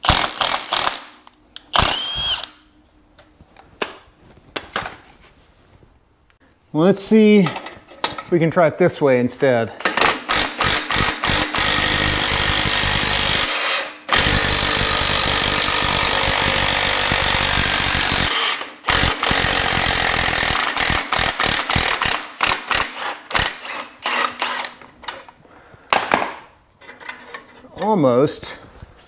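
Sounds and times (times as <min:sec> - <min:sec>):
impact wrench hammering: 0:09.8 - 0:24.8.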